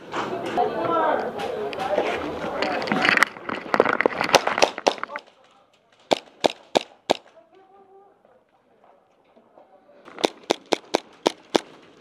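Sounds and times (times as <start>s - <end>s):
airsoft pistol shots: 6.1s - 7.2s, 10.1s - 11.7s.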